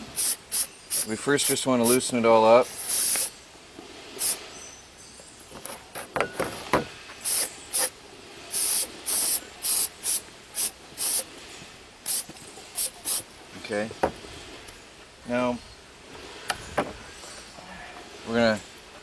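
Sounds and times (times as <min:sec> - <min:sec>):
aerosol spray hissing: 0:00.0 - 0:02.0, 0:02.7 - 0:03.3, 0:04.2 - 0:04.4, 0:07.2 - 0:07.9, 0:08.5 - 0:11.3, 0:12.0 - 0:13.2.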